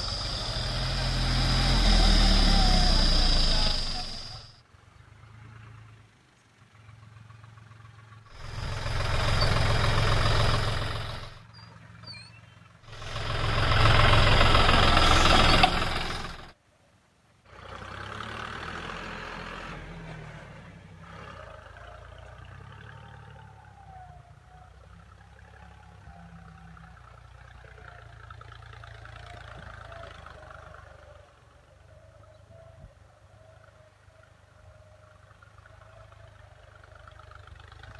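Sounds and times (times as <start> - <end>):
tractor diesel engine revving: 0.0 - 4.6, 7.0 - 11.4, 12.8 - 16.6, 17.5 - 24.0, 35.3 - 37.9.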